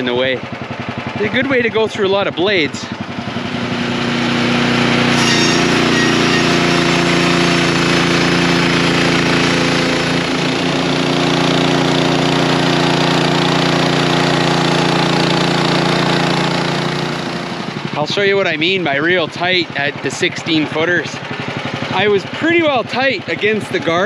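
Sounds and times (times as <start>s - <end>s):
sawmill engine running under load: 0.0s - 24.0s
band blade sawing log: 3.7s - 17.5s.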